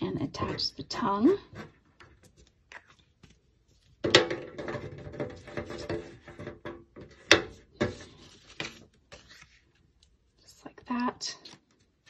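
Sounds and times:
paper sliding on a tabletop: 7.8 - 9.6.

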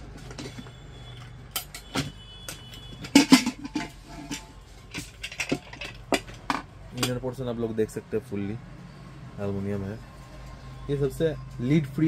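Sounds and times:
pressure cooker lid clanking: 3.0 - 4.4.

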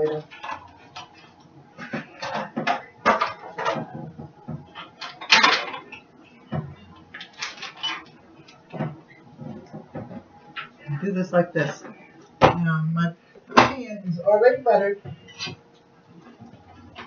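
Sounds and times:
dishes and utensils clinking: 0.0 - 10.9, 15.0 - 15.6.

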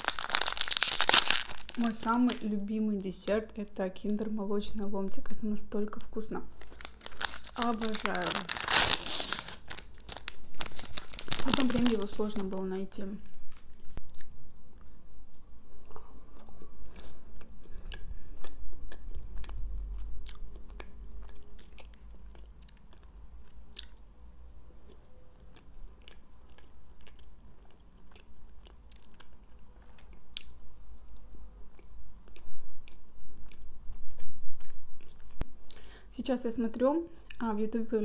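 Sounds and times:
chewing soft food: 15.6 - 24.1, 24.8 - 35.8.

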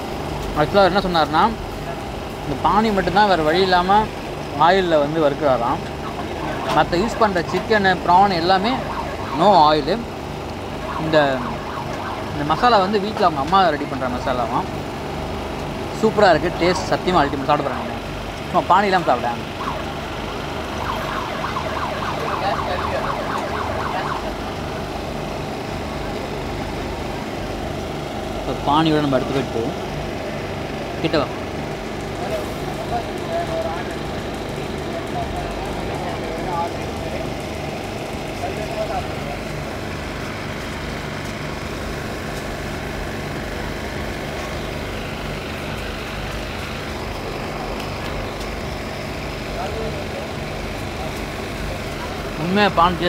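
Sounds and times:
engines idling: 0.0 - 53.0
street noise: 0.0 - 53.0
siren yelping: 5.7 - 14.6, 16.0 - 25.4.

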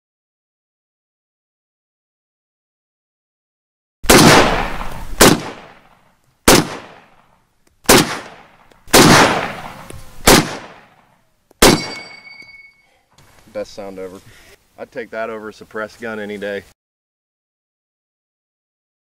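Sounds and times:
rifle shots with echo: 4.0 - 7.2, 7.9 - 11.0, 11.6 - 12.3
rifle clip ejecting ping: 11.6 - 12.8.

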